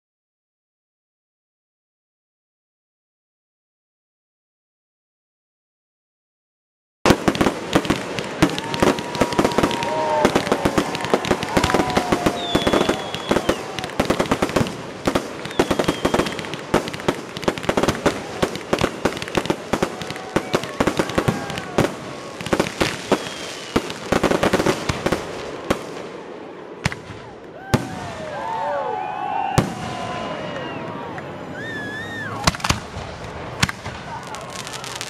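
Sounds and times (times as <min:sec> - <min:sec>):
fireworks bangs and crackles: 0:07.1 - 0:28.8, 0:29.4 - 0:35.0.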